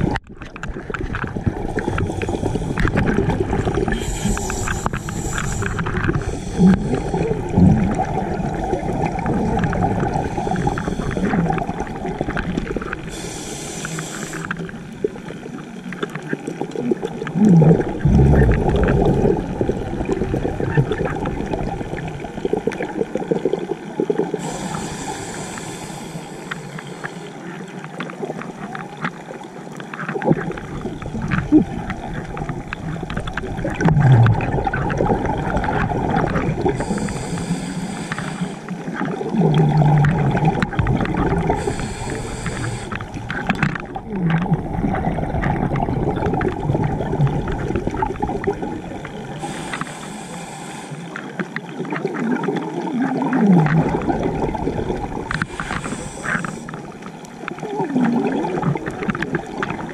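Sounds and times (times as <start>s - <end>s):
bubbly underwater exhalations: 0.0s - 26.2s, 30.1s - 59.9s
regulator hissing inhalations: 3.9s - 7.4s, 10.2s - 11.4s, 13.1s - 14.6s, 24.4s - 27.4s, 36.8s - 38.8s, 41.6s - 43.2s, 49.4s - 51.3s, 55.4s - 56.8s.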